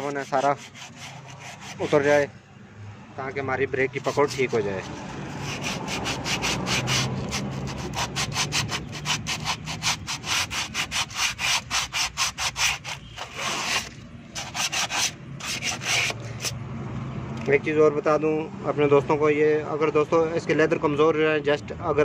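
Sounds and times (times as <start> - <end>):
sandpaper scraping brake lining: 0.0 - 2.3, 3.9 - 16.6.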